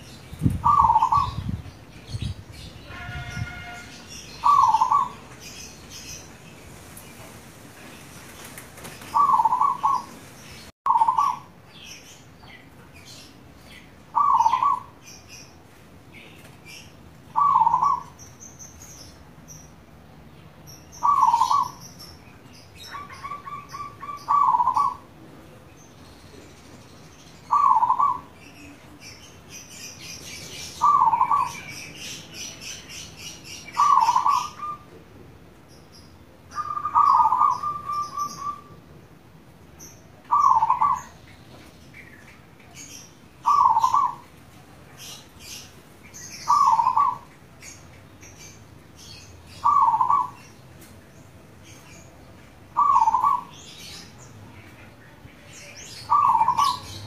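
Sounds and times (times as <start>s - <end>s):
small birds chirping: 0.0s - 57.0s
dove cooing: 0.6s - 1.4s, 4.4s - 5.2s, 9.1s - 10.3s, 10.9s - 11.5s, 14.2s - 14.9s, 17.4s - 18.2s, 21.0s - 21.8s, 22.9s - 25.1s, 27.5s - 28.3s, 30.8s - 31.7s, 33.7s - 34.8s, 36.6s - 38.8s, 40.3s - 41.1s, 43.4s - 44.2s, 46.4s - 47.3s, 49.6s - 50.4s, 52.8s - 53.6s, 56.1s - 57.0s.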